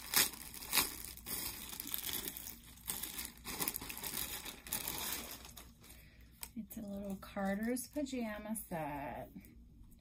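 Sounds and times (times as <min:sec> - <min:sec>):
packaging crinkling: 0:00.0 - 0:07.9.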